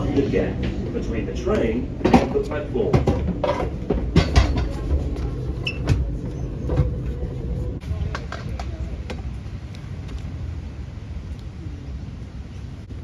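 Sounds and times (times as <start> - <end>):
train rumbling: 0.0 - 13.0
knocks and rattles: 2.0 - 7.0.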